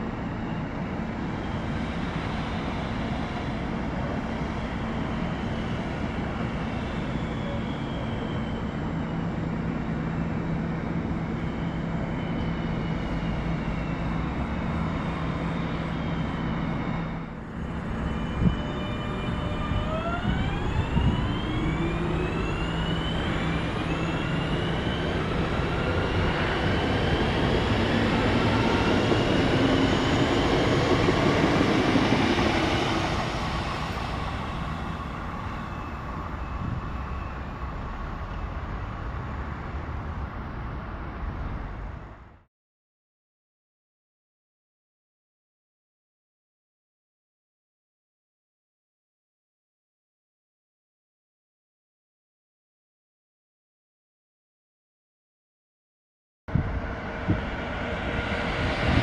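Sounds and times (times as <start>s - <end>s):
train rumble with low hum: 0.0s - 42.5s, 56.5s - 59.0s.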